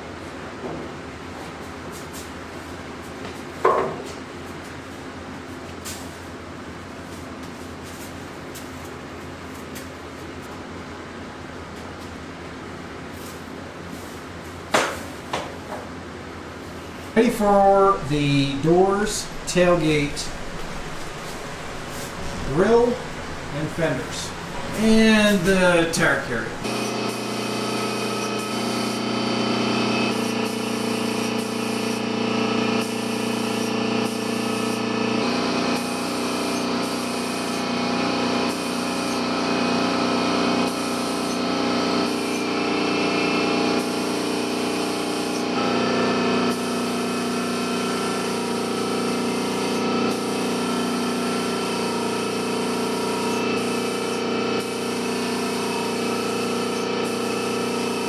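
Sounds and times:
air compressor hum: 0.0s - 58.0s
paint spray gun hissing: 17.3s - 58.0s.

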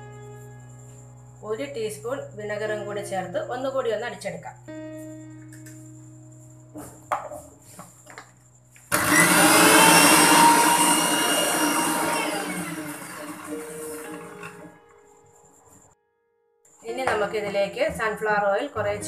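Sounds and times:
electric mixer grinder running: 8.9s - 14.7s.

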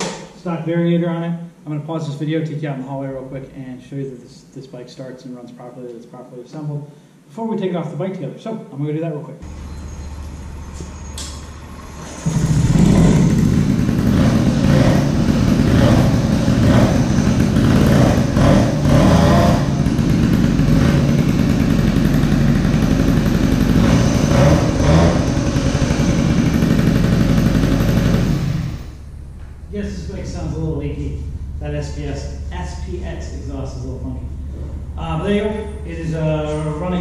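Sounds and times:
moped engine starting and running: 9.4s - 37.0s.

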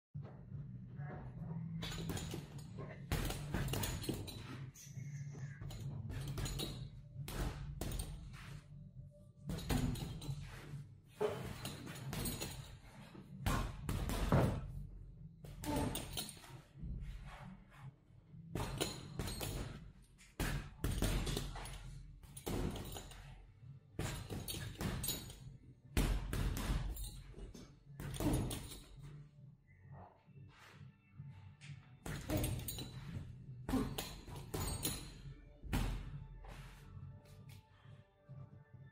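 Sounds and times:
gloves punching heavy bag: 1.9s - 4.6s, 11.3s - 14.8s, 18.5s - 23.3s, 24.0s - 28.9s, 33.7s - 36.2s.

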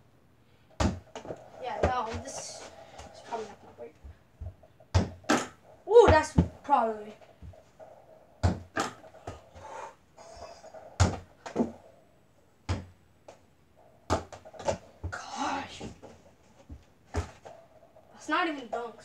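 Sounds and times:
ball hitting backboard and door: 0.8s - 3.2s, 4.4s - 6.8s, 8.4s - 9.4s, 11.0s - 11.8s, 12.7s - 12.9s, 14.1s - 15.2s, 16.7s - 17.5s.

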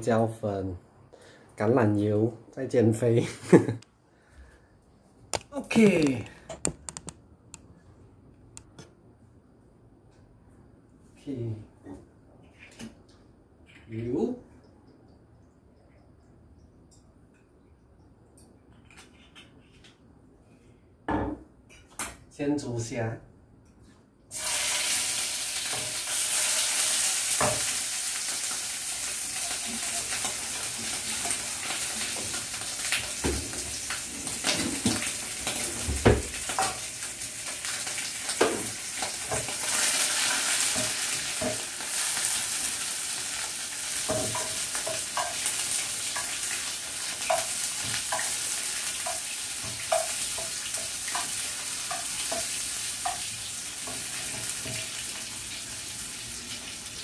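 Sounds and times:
shrimp sizzling in hot oil: 24.3s - 57.0s
clinks and knocks against pan: 44.1s - 45.4s.

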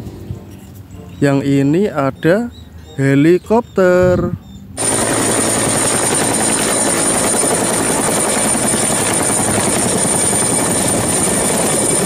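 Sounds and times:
helicopter rotor beating: 4.8s - 12.0s.

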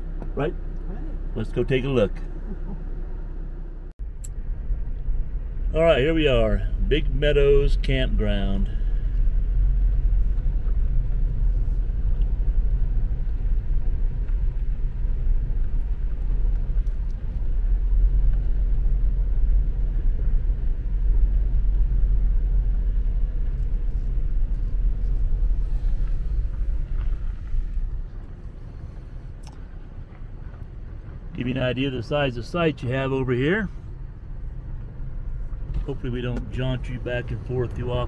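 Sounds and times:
car driving on gravel: 0.0s - 38.0s.

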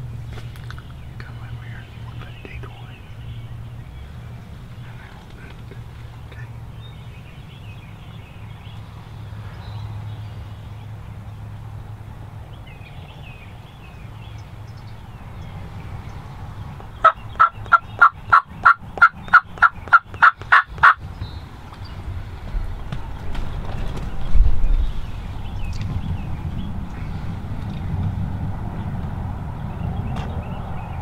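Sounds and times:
low steady rumble: 0.0s - 31.0s
wild turkey yelping: 17.0s - 21.0s.

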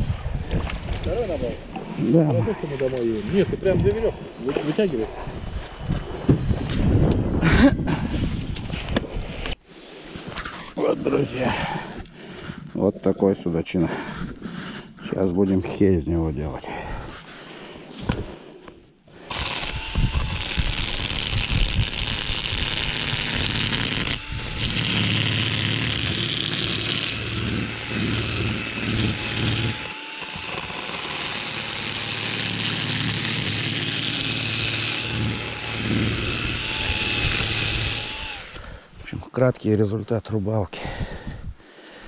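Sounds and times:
drill motor scraping fish scales: 19.2s - 38.8s.

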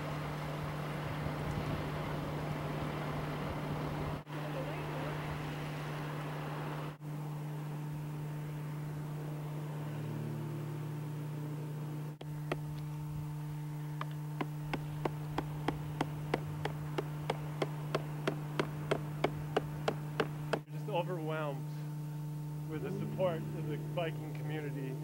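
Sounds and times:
steady hum: 0.0s - 25.0s
hammer striking stake: 12.2s - 12.9s, 14.0s - 20.7s.

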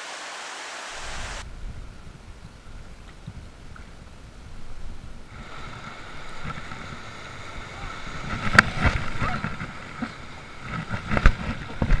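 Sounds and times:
water rushing through rapids: 0.0s - 1.4s.

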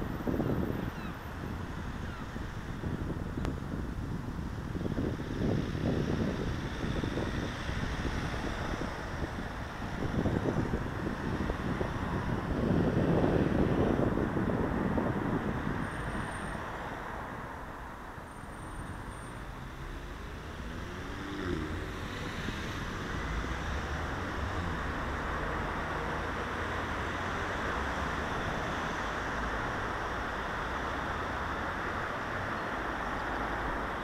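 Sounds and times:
rumble of traffic: 0.0s - 34.0s
car passing close: 19.2s - 34.0s.

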